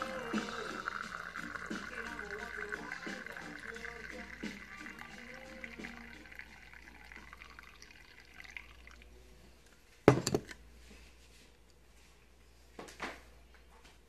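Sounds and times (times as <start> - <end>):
coffee trickling into mug: 0.0 - 9.1
glass carafe set down: 10.1 - 10.6.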